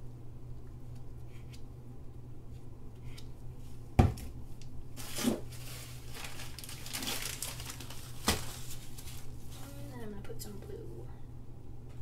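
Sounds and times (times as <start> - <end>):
steady low hum: 0.0 - 12.0
plastic cup knocking on table: 4.0 - 4.3
gloved hands and towel rustling: 5.0 - 10.5.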